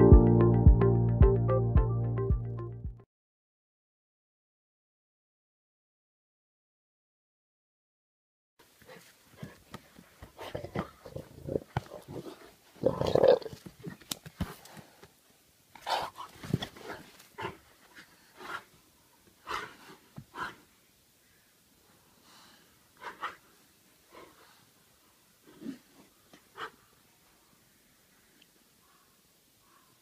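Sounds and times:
jaguars growling and breathing: 0:08.8 - 0:15.0, 0:15.8 - 0:20.8, 0:21.9 - 0:27.0.

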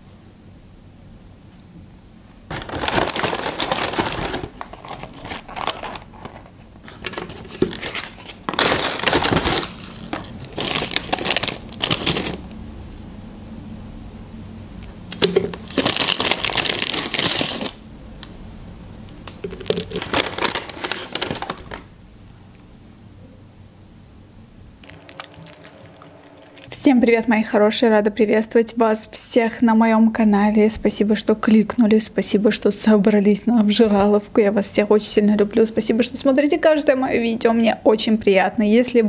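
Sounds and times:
paper bag crinkling: 0:02.5 - 0:12.5, 0:15.2 - 0:17.9, 0:19.4 - 0:21.9, 0:24.8 - 0:26.8.

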